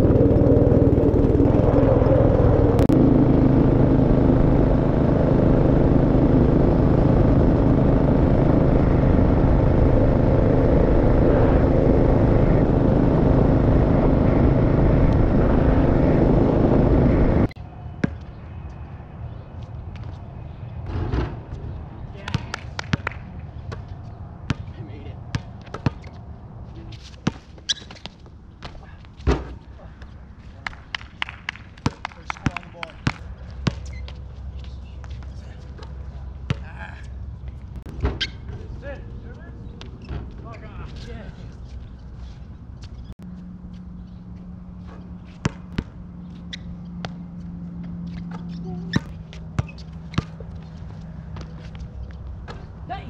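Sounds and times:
low steady hum: 0.0s - 26.6s
basketball bouncing on hard court: 24.5s - 24.7s, 25.3s - 26.1s, 31.8s - 34.2s, 45.4s - 46.0s, 48.9s - 50.5s.

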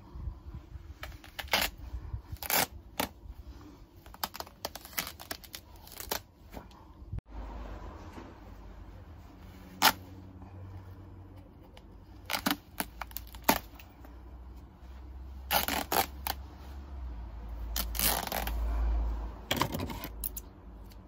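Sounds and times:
fabric tearing: 1.0s - 3.2s, 4.0s - 6.3s, 9.5s - 10.2s, 12.1s - 13.8s, 15.4s - 16.7s, 17.6s - 18.8s.

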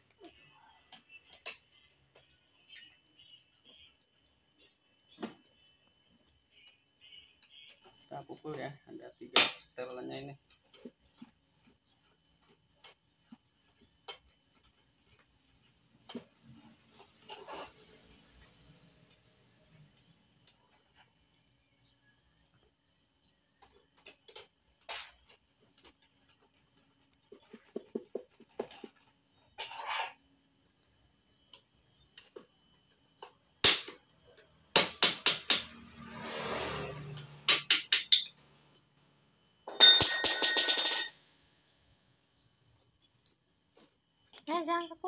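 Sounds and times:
hammer striking metal: 34.8s - 35.8s, 37.2s - 38.4s.

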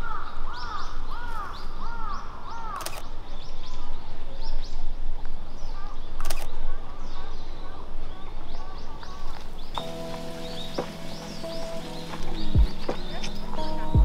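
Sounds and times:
crow cawing: 0.0s - 2.8s
small birds calling faintly: 0.0s - 14.0s.

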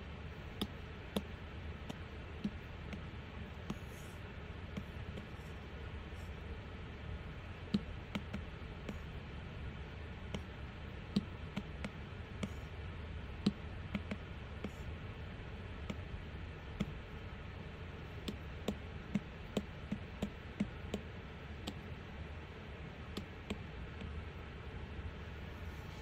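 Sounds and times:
faint background hum: 0.0s - 26.0s.

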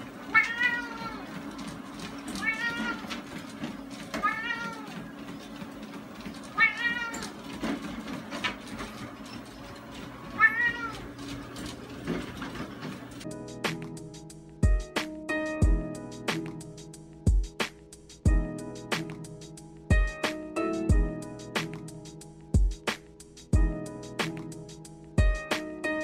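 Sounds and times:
treadmill belt clicks: 0.0s - 13.3s
treadmill motor humming: 0.0s - 15.0s, 15.6s - 25.8s
cat meowing: 0.3s - 1.4s, 2.3s - 3.2s, 4.2s - 5.1s, 6.6s - 7.4s, 10.3s - 11.1s.

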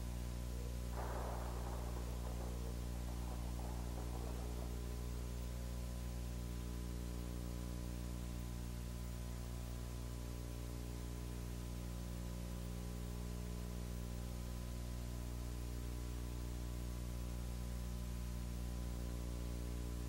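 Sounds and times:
steady hiss: 0.0s - 9.8s
electrical hum: 0.0s - 20.0s.

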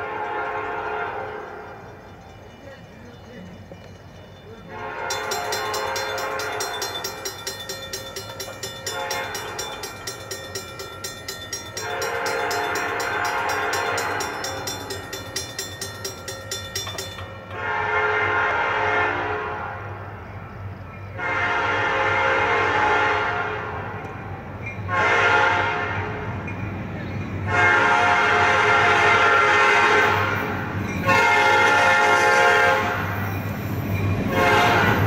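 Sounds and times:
train horn blasts: 0.0s - 1.9s, 4.6s - 16.2s, 17.1s - 20.2s, 21.1s - 24.0s, 24.9s - 26.4s, 27.4s - 33.2s, 34.2s - 35.0s
crossing warning bell ringing: 0.7s - 18.5s, 24.0s - 35.0s.

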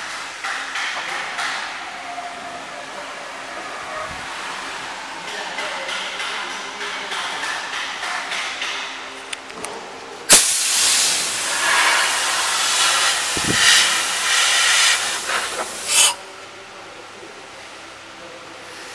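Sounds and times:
compressed air hissing: 10.3s - 16.2s.

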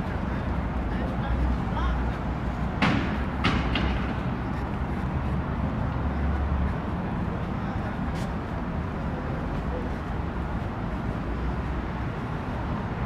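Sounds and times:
low rumble of traffic: 0.0s - 13.0s
sharp knocks: 2.8s - 4.3s.

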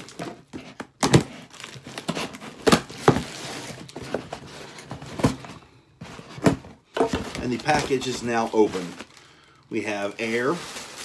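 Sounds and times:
packaging rustling and crinkling: 0.0s - 11.0s.

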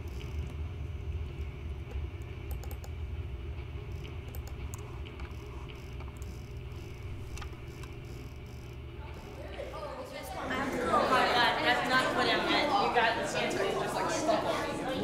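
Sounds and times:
steady low hum: 0.0s - 15.0s
computer keys and mouse clicks: 1.9s - 3.0s, 4.0s - 8.0s.

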